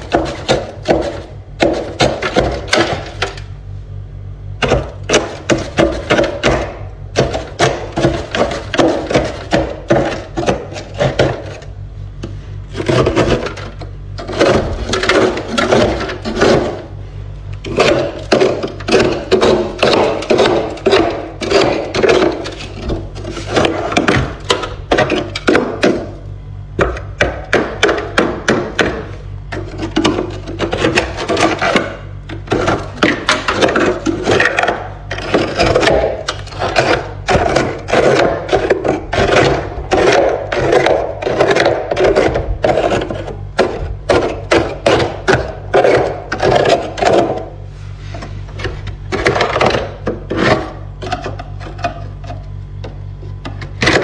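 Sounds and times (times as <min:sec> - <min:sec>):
scraper crunching through ice: 0:32.4 - 0:47.4.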